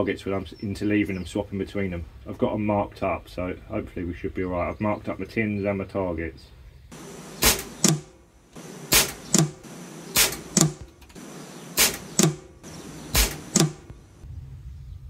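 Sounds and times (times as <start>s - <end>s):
air rifle shots double crack: 6.9s - 14.2s.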